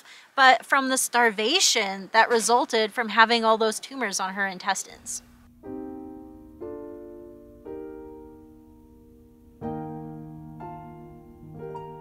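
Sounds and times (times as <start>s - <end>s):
slow piano chords: 5.0s - 12.0s.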